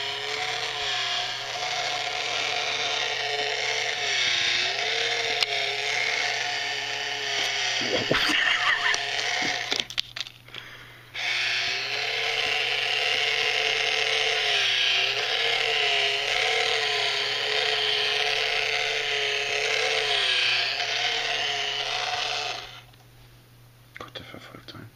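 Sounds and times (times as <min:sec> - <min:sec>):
small motor and gears whirring: 0:00.0 - 0:23.0.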